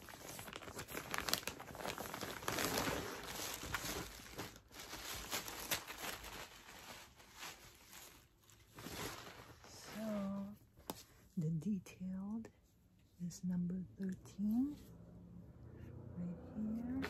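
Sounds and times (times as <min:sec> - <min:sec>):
plastic bag crinkling: 0:00.0 - 0:10.5.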